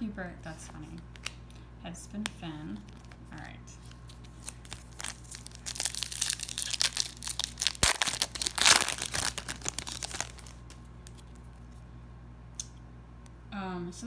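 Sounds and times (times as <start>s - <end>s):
foil wrapper crinkling: 2.7s - 11.6s.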